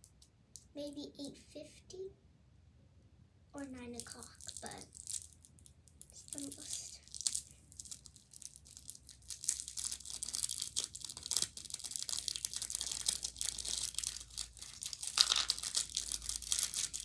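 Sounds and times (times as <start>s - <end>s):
plastic wrapper crinkling: 3.8s - 17.0s.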